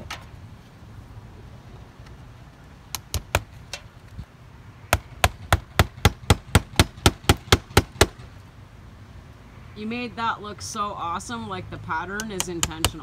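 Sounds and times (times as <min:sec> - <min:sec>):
hammer blows on wooden shingles: 0:04.9 - 0:08.3.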